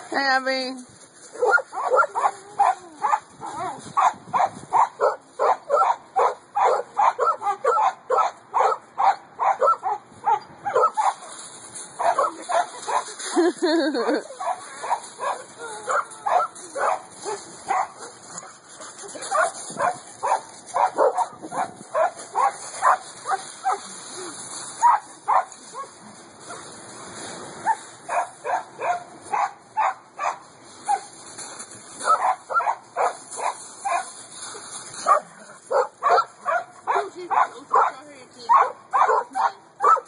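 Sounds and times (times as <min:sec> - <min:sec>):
dog barking: 0:01.4 - 0:03.2, 0:04.0 - 0:11.2, 0:14.4 - 0:18.1, 0:19.4 - 0:23.8, 0:28.1 - 0:30.4, 0:32.0 - 0:34.0, 0:35.0 - 0:40.0.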